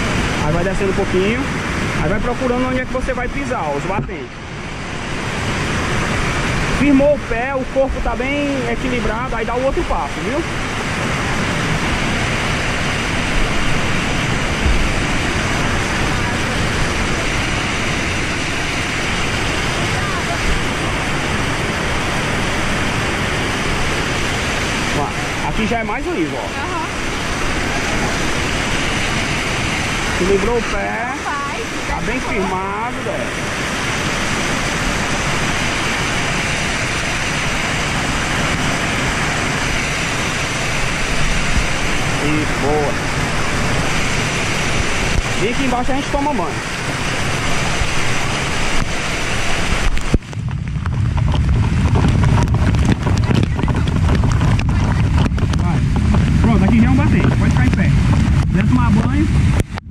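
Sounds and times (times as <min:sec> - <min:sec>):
waterfall roaring onto rock: 0:00.0 - 0:59.9
low bumps: 0:46.6 - 0:59.9.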